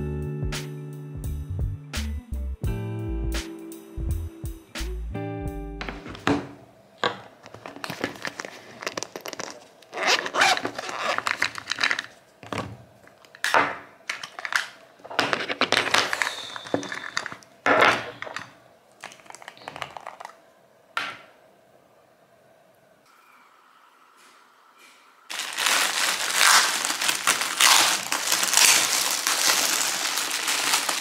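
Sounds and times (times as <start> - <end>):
plastic packaging crinkling: 7.4 - 12.3, 14.2 - 17.4, 19.0 - 20.4, 25.3 - 31.0.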